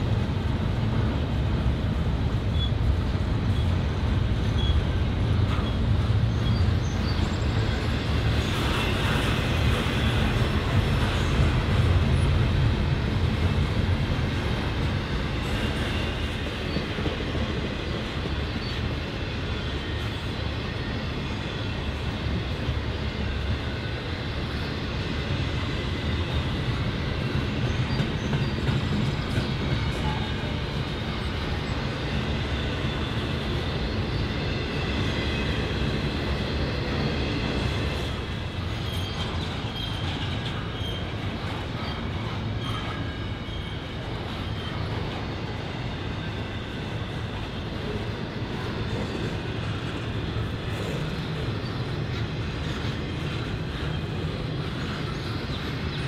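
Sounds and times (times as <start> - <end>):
freight train rumble and clatter: 0.0 - 56.0
high wheel squeal: 38.6 - 45.3.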